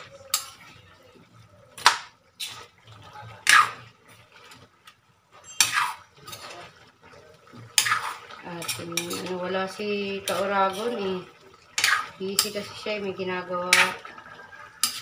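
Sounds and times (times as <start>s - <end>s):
metal ladle scraping a wok: 0.0s - 0.9s, 2.4s - 2.8s, 3.4s - 4.7s, 5.3s - 6.8s, 7.6s - 11.1s, 11.7s - 15.0s
wet stirring: 0.0s - 15.0s.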